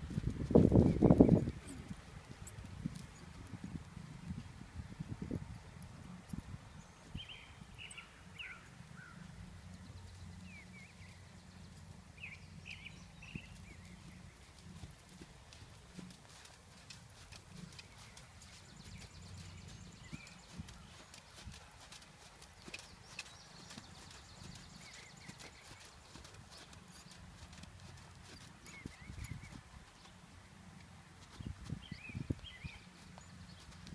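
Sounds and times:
birds chirping: 6.7s - 33.9s
horse hoofbeats on sand: 11.5s - 30.3s, 31.2s - 33.9s.

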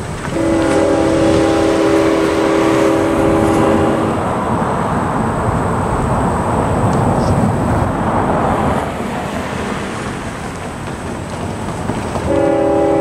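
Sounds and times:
train rumble: 0.0s - 13.0s
locomotive horn blast: 0.3s - 4.4s, 12.3s - 13.0s.

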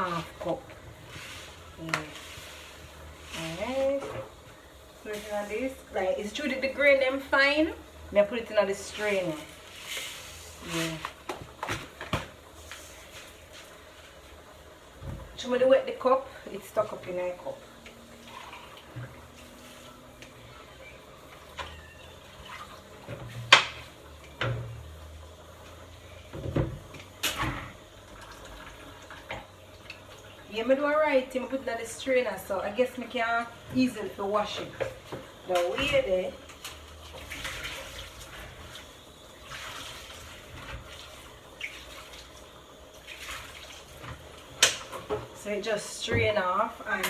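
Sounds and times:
water splashing in a sink: 16.7s - 20.4s, 21.2s - 30.7s, 33.6s - 45.5s.

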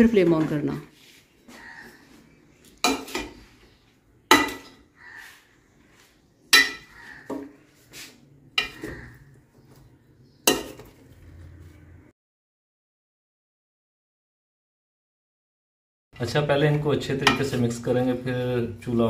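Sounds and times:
metal spoon clanking against pan: 4.3s - 4.9s, 6.5s - 7.4s, 8.5s - 9.0s, 10.4s - 11.0s, 17.1s - 17.7s
spoon scraping pan: 4.3s - 12.0s.

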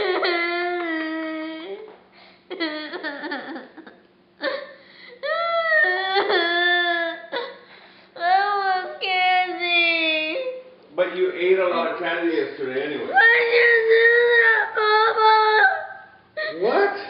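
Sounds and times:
girl crying and wailing: 0.0s - 1.9s, 2.5s - 7.6s, 8.2s - 10.7s, 13.1s - 16.8s.

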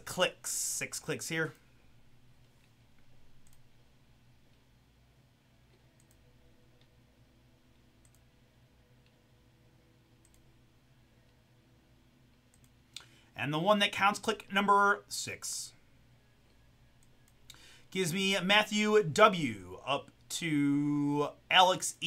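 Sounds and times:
low steady hum: 0.0s - 22.0s
faint computer mouse clicks: 8.0s - 8.2s.

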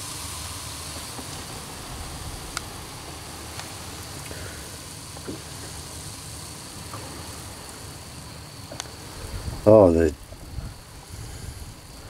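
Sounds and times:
coffee bubbling in pot: 0.0s - 12.0s
gas stove hissing: 0.0s - 12.0s
faint ticks: 6.8s - 7.8s, 8.6s - 9.0s.

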